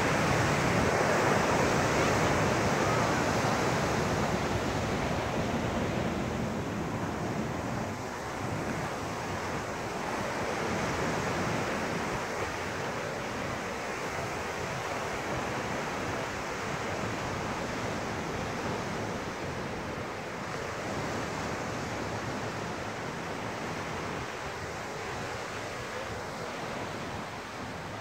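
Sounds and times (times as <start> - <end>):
surf washing up a sandy beach: 0.0 - 28.0
wind buffeting microphone: 0.0 - 28.0.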